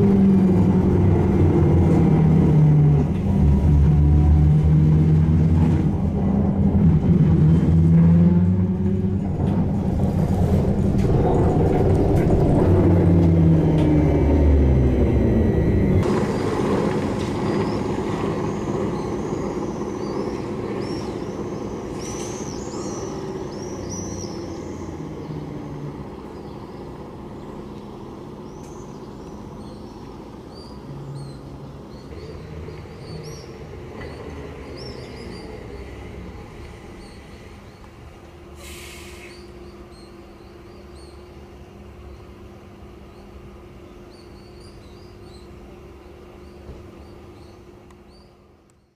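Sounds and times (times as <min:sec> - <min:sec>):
trolleybus whine: 0:00.0 - 0:48.9
small birds chirping: 0:17.6 - 0:36.1, 0:39.2 - 0:42.4, 0:43.0 - 0:48.9
short hiss: 0:38.6 - 0:39.4.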